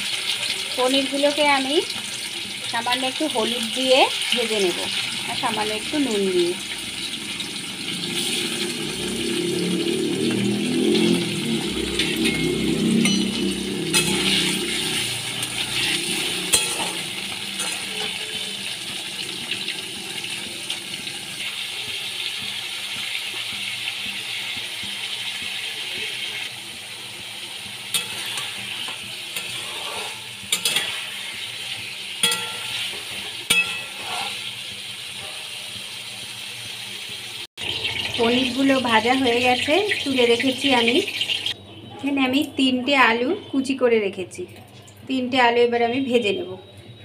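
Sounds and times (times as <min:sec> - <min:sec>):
food sizzling in hot oil: 0:00.0 - 0:41.6
spatula clinking against wok: 0:12.0 - 0:18.6, 0:27.9 - 0:34.5.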